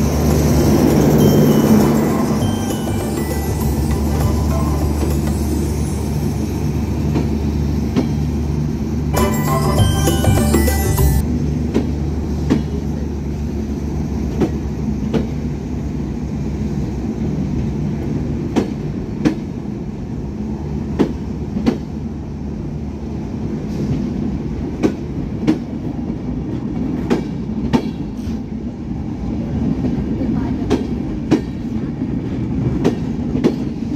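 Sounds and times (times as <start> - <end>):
train wheels rumbling on track: 0.0 - 33.9
clickety-clack of train wheels: 6.8 - 8.4, 11.5 - 16.1, 16.8 - 33.9.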